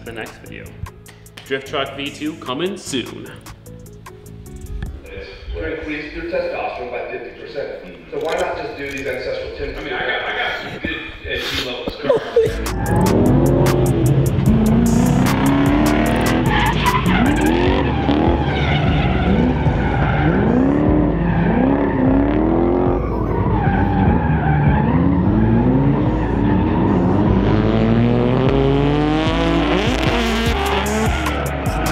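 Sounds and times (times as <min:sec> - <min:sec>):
background music with bass line: 0:00.0 - 0:05.2, 0:12.2 - 0:31.9
truck engine revving: 0:12.5 - 0:31.9.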